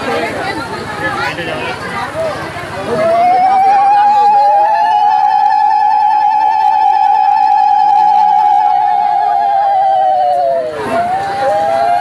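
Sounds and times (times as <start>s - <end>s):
women ululating: 3.0s - 12.0s.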